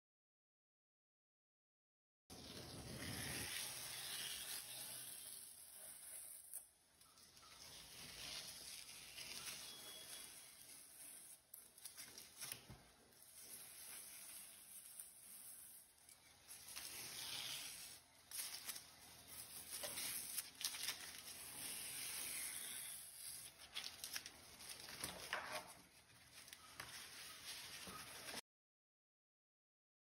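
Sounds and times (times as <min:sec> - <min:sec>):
masking tape peeling: 0:02.9 - 0:06.7, 0:07.6 - 0:25.4
tape crackling: 0:03.9 - 0:28.4.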